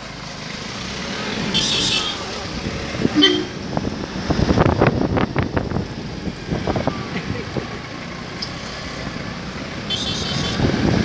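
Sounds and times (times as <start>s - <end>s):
wind noise on microphone: 2.9s - 7.1s, 10.2s - 11.0s.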